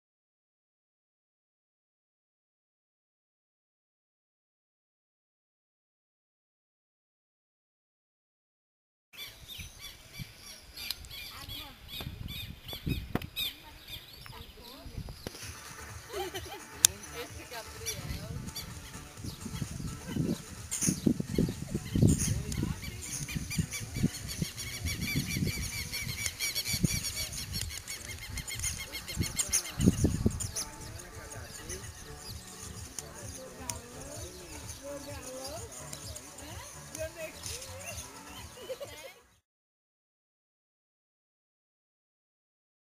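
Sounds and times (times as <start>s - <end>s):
many birds chirping: 9.2s - 39.4s
wind gusts on microphone: 9.4s - 15.6s, 17.9s - 32.2s.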